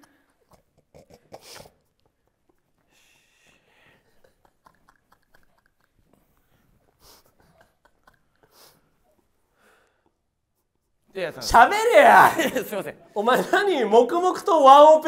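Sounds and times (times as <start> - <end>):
soft breathy puffs: 2.8 - 4.3, 6.2 - 7.7, 8.4 - 10.3.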